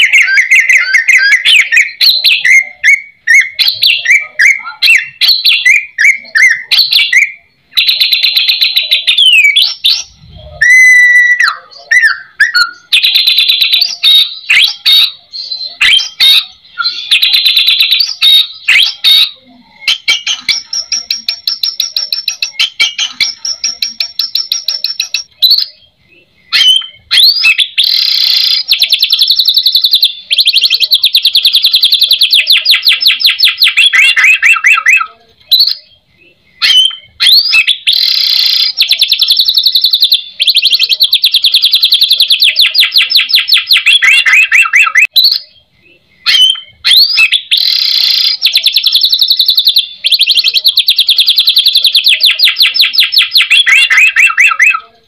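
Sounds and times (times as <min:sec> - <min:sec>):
bird singing trills and whistles: 0:00.0 - 0:55.0.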